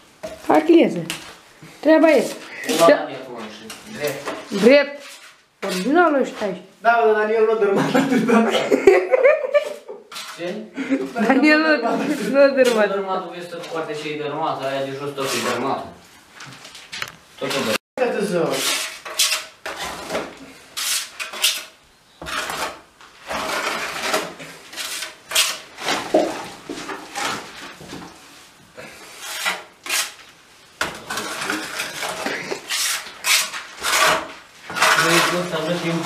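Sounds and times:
plastering tool scraping a wall: 3.8 - 6.5, 9.6 - 10.6, 18.4 - 28.2, 28.8 - 30.2, 30.8 - 36.0.

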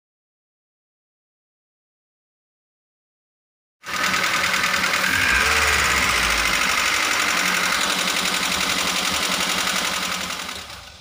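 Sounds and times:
engine running with rough clatter: 3.8 - 11.0.

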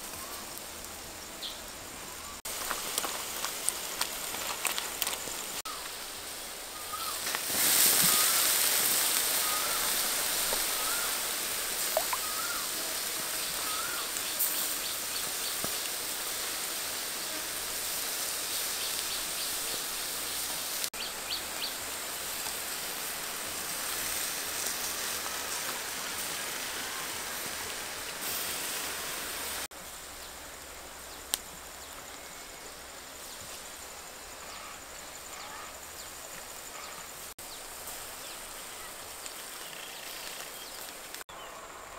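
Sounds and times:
duck sizzling on grill: 0.0 - 41.3.

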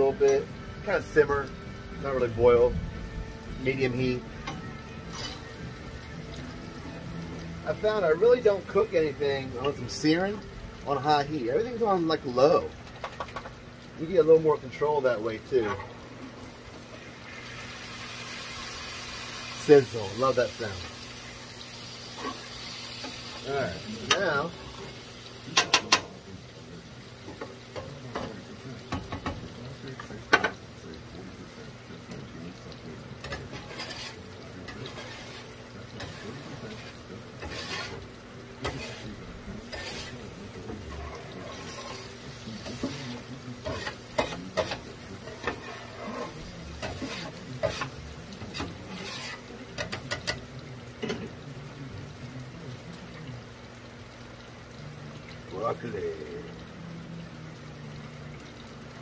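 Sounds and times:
meat sizzling in sauce: 0.0 - 59.0
utensil clacking and scraping pan: 4.5 - 5.5, 33.2 - 50.4.

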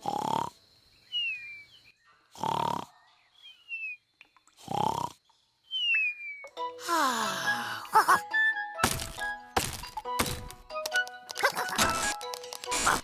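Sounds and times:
cartoon snoring: 0.0 - 0.6, 2.3 - 2.9, 4.6 - 5.2.

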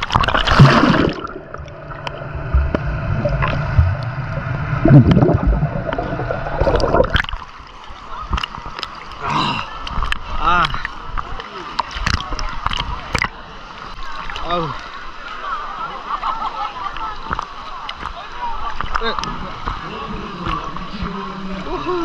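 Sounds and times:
underwater gurgling and bubbling: 0.0 - 7.5
pool water splashing: 0.0 - 22.0.

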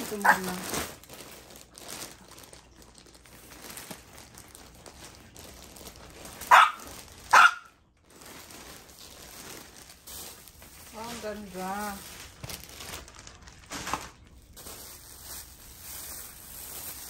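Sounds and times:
plastic packaging rustling: 0.0 - 17.0
dog barking: 6.4 - 7.8.

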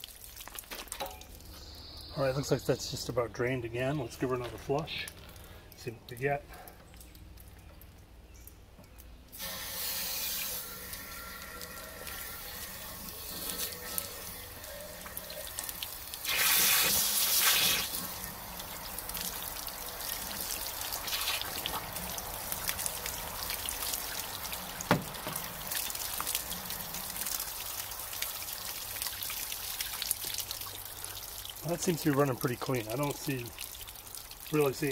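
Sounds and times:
water rushing from hose wand: 9.3 - 34.9
water splashing: 9.3 - 34.9.

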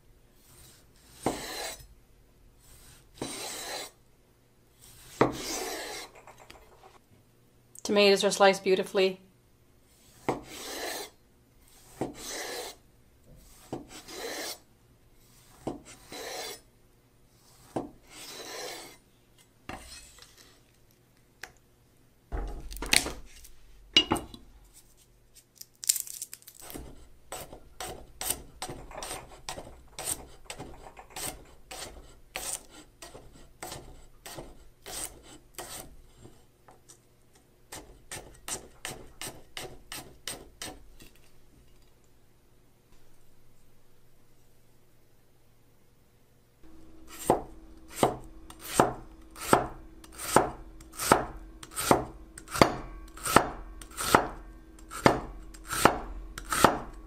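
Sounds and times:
knife slicing tomato on board: 0.6 - 1.8, 2.7 - 4.0, 4.9 - 6.2, 10.0 - 12.8, 13.4 - 14.6, 26.6 - 36.4, 37.7 - 41.2, 47.1 - 57.0
knife chopping garlic: 1.0 - 1.8, 10.2 - 11.1, 26.6 - 35.9, 37.7 - 40.8, 46.7 - 57.0.

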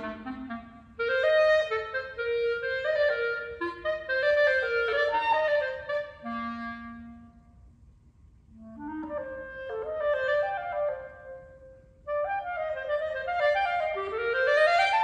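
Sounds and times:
clarinet playing: 0.0 - 7.6, 8.5 - 15.0.

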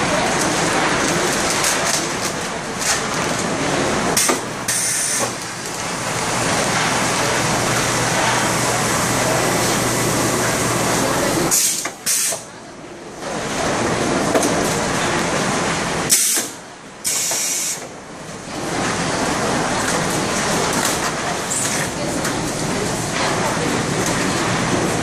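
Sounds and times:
packaging machine running: 0.0 - 12.5, 13.3 - 25.0
sharp air hiss bursts: 4.2 - 5.3, 11.5 - 12.4, 16.1 - 17.8.

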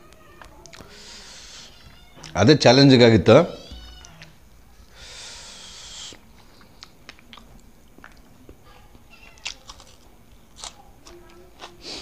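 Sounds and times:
chewing: 0.4 - 1.0, 6.1 - 12.0.

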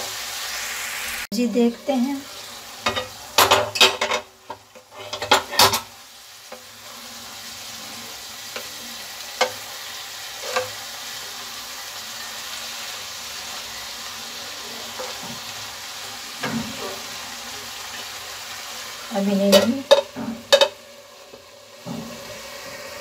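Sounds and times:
vegetables sizzling: 0.0 - 23.0
wooden spatula scraping a pan: 1.7 - 5.9, 6.5 - 10.9
spatula tapping a pan: 9.4 - 9.7, 19.5 - 22.1.

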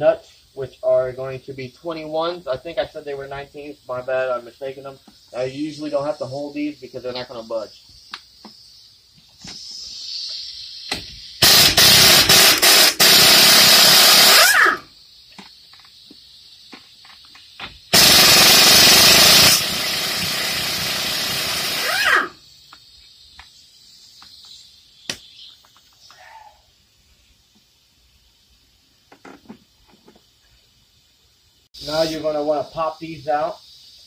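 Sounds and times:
pneumatic wrench running: 11.4 - 14.8, 17.9 - 22.3.

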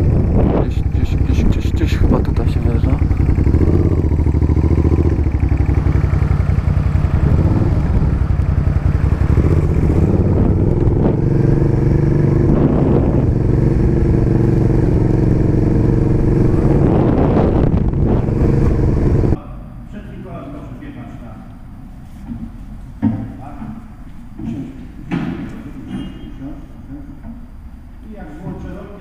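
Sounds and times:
motorcycle engine at low revs: 0.0 - 19.4.

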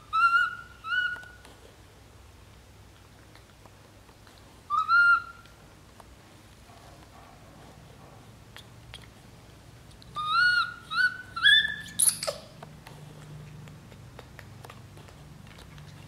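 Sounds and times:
baby monkey crying: 0.0 - 1.4, 10.2 - 12.6.

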